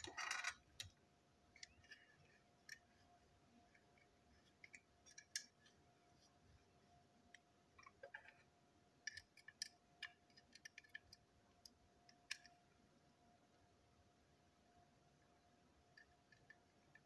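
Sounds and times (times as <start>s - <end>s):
small parts clicking on table: 4.5s - 5.6s, 9.0s - 12.6s.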